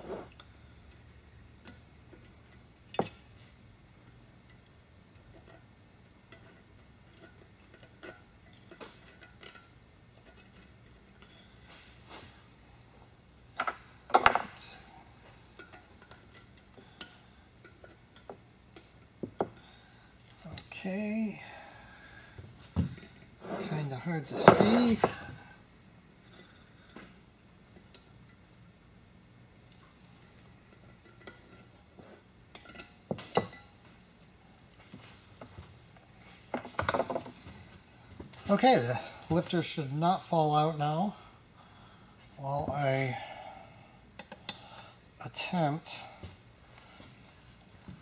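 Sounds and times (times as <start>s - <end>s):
metallic ring: 13.5s - 14.6s.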